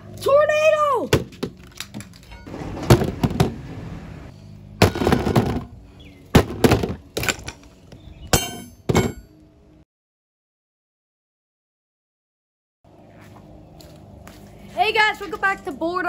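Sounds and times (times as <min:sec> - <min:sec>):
hammer striking metal tabletop: 0:08.4 - 0:09.3.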